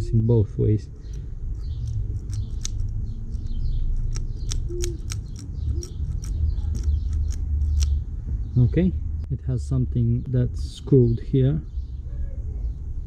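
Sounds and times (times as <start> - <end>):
birds chirping faintly: 0.0 - 13.0
bicycle freehub clicking: 1.6 - 8.0.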